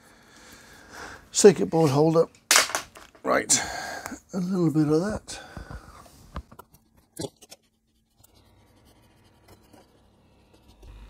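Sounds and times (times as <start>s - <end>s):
soft scratching: 6.7s - 11.0s.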